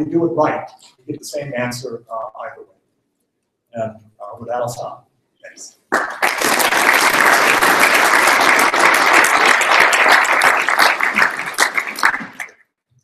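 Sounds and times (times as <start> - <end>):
audience applauding: 5.9 - 12.7.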